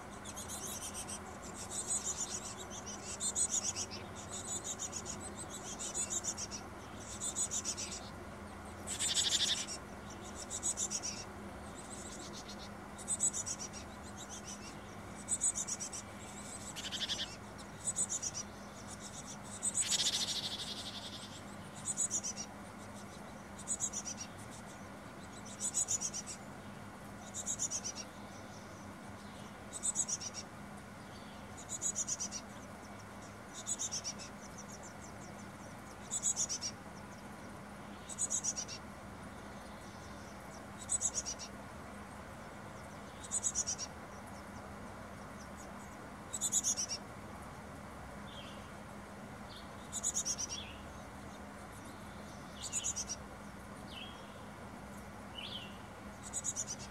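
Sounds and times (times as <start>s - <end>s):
nestlings begging calls: 0.0s - 56.9s.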